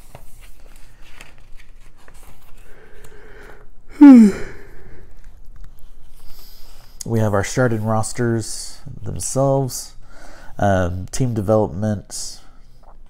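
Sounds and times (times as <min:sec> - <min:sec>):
magazine pages rustling: 0:00.0 - 0:03.2
breath in: 0:02.6 - 0:05.1
man coughing: 0:04.0 - 0:04.5.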